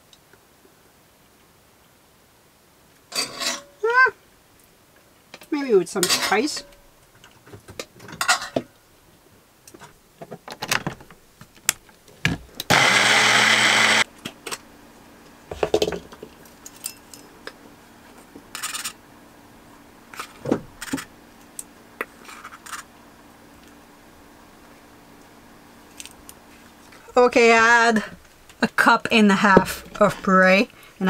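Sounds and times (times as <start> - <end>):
small blender running: 12.7 - 14.1.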